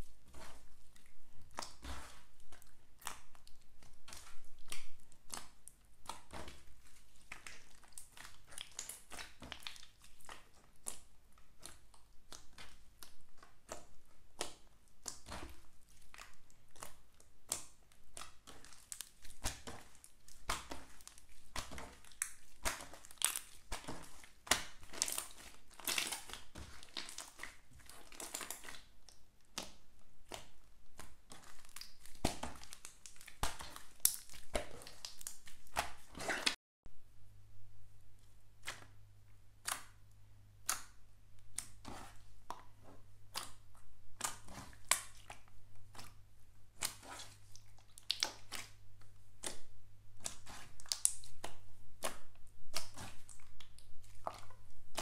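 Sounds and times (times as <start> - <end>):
slime crackling and popping: 0.4 - 13.8, 14.4 - 36.6, 40.6 - 55.0.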